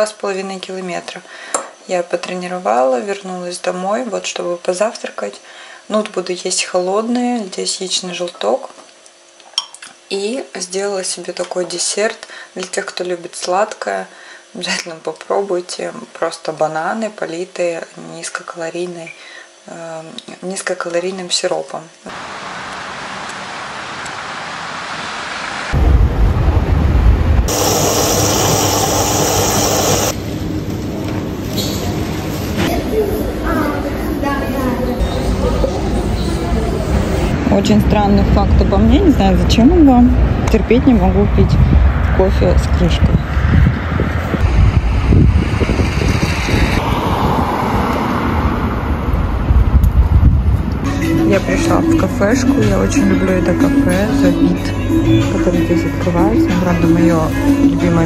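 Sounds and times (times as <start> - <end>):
outdoor ambience hiss: 0.0 - 43.0
deep rumble: 25.7 - 31.3, 37.0 - 58.0
coffee machine frothing milk: 27.5 - 30.2
road traffic passing: 27.5 - 33.0, 35.7 - 58.0
wind on microphone: 40.1 - 50.9.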